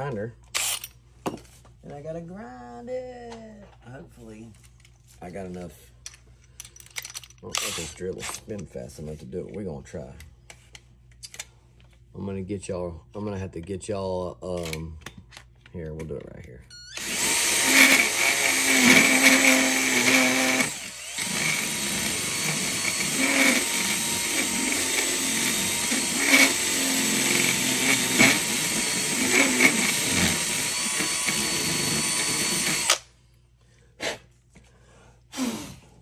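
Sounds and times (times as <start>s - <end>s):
cordless drill grinding plastic: 16.9s - 33.1s.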